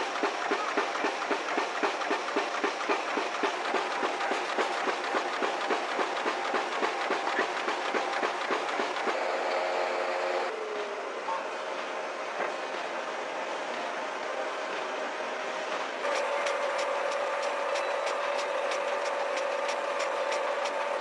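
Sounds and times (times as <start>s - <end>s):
printing machinery clattering: 0.0s - 9.6s, 15.7s - 21.0s.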